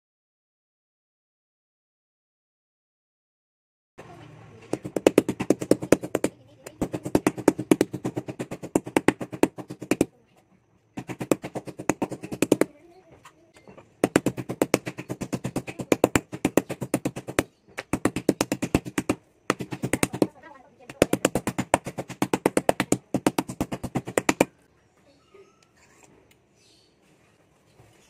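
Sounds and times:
mallet pounding meat: 0:04.7 - 0:10.1, 0:11.0 - 0:12.7, 0:14.0 - 0:24.5.

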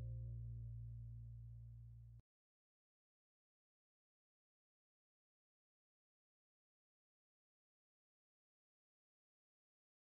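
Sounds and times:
low steady tone: 0:00.0 - 0:02.2.

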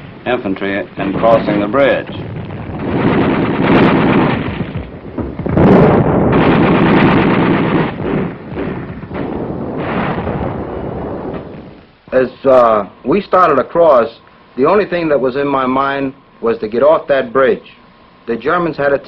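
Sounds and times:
rapid gunfire: 0:01.0 - 0:11.6
machine-gun fire: 0:01.0 - 0:11.8.

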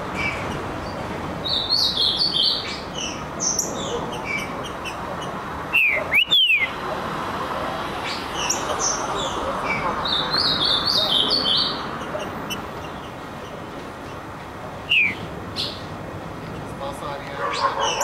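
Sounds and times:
high bird notes: 0:00.1 - 0:06.8, 0:08.1 - 0:15.9
soft bird chirps: 0:14.9 - 0:15.9.

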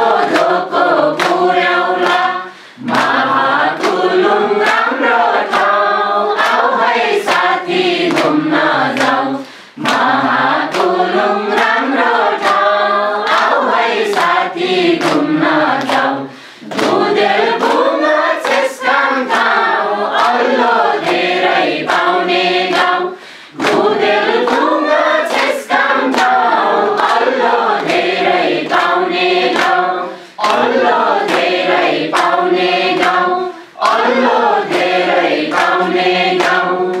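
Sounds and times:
group of adults singing: 0:00.0 - 0:37.0
people clapping in time: 0:00.0 - 0:37.0.

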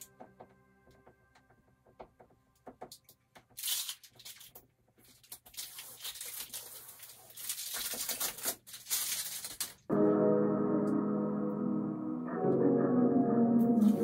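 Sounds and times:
packing tape ripping: 0:03.6 - 0:09.9.

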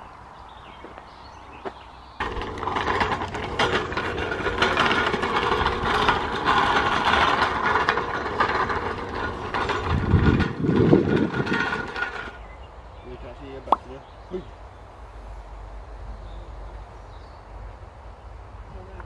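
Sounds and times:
hand truck wheels on gravel: 0:00.4 - 0:14.2.

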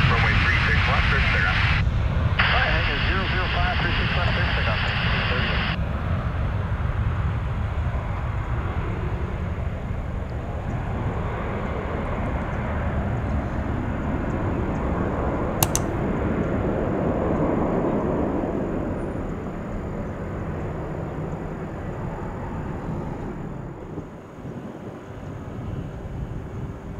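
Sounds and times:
jet engine rumble: 0:00.0 - 0:26.9
sharp click: 0:15.6 - 0:16.0.

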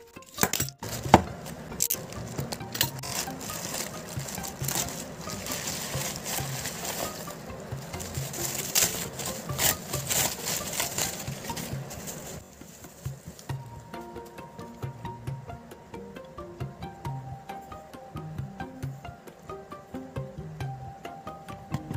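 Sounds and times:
plastic and bubble wrap crinkling: 0:00.0 - 0:13.7.

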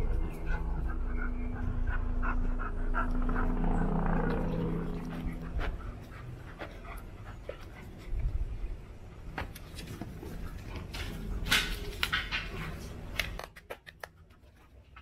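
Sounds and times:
dogs panting: 0:00.0 - 0:11.5.

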